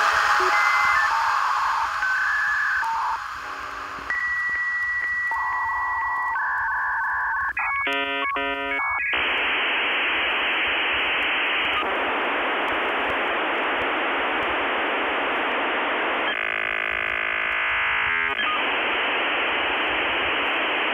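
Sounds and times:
static hiss: 0.0 - 20.9
harsh electronic buzz: 7.9 - 9.8, 15.6 - 20.9.

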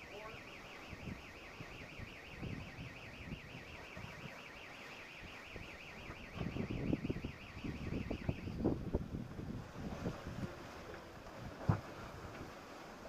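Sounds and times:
high-pitched electronic alarm warble: 0.0 - 8.7
wind and water at sea: 0.0 - 13.0.

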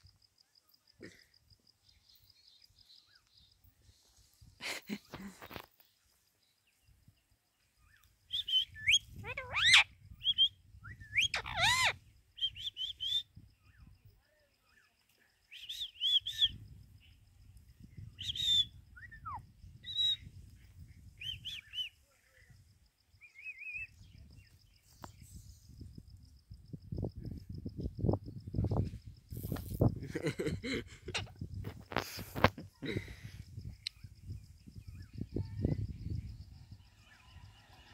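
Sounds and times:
parakeet chirps and whistles: 8.4 - 11.9.

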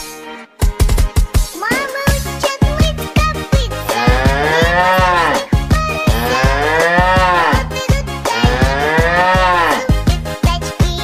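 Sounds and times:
electronic dance beat: 0.6 - 10.2
cow mooing: 3.9 - 7.7, 8.3 - 9.9.

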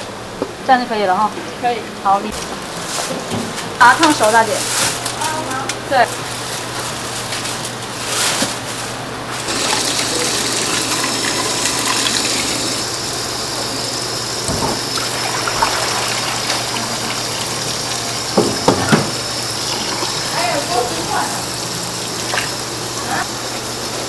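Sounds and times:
tap water running into steel bowl: 9.5 - 12.8, 14.4 - 22.7.

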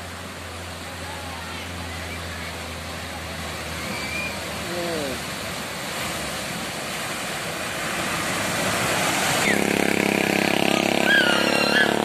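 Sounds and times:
floodwater rushing and splashing: 0.0 - 12.0
motorcycle engine running: 9.5 - 12.0.

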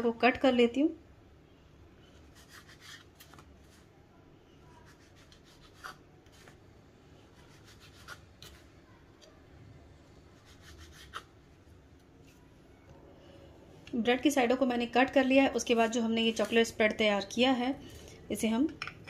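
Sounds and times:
knife scraping bread crust: 2.1 - 3.4, 4.8 - 6.6, 7.3 - 8.7, 10.4 - 11.3.

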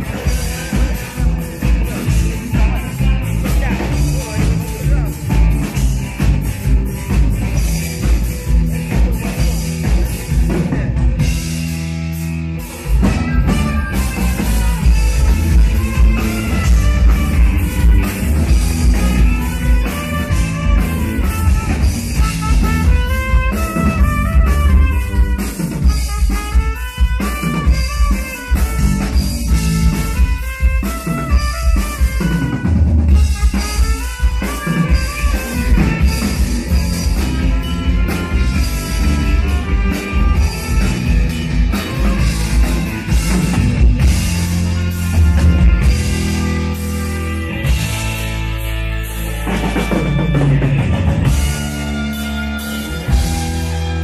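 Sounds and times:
drum kit: 0.0 - 54.0
keyboard: 0.0 - 54.0
trumpet melody: 12.8 - 54.0.

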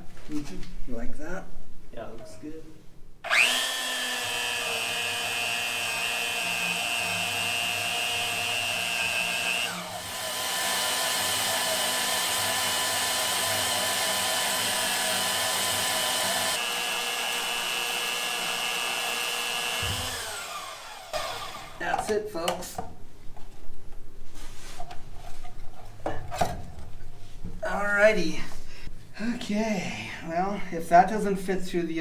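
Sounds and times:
power tool motor whine: 3.2 - 21.8.

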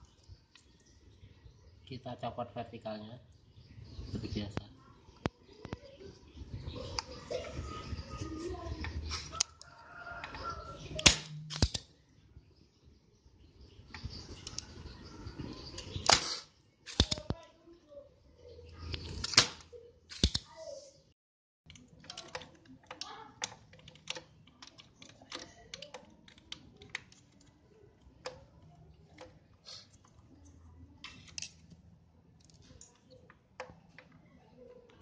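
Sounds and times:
desoldering pump firing: 11.0 - 11.8.

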